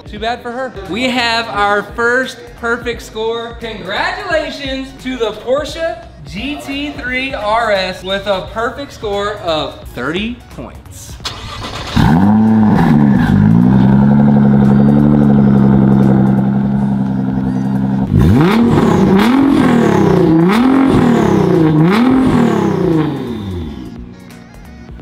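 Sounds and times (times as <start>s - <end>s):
car engine revving: 11.2s - 24.4s.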